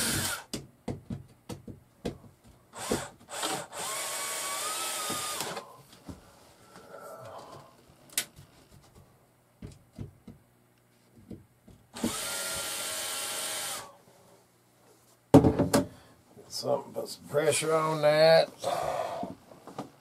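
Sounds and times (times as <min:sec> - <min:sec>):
cordless drill spinning: 0:00.0 - 0:00.4, 0:02.8 - 0:05.7, 0:12.0 - 0:13.9.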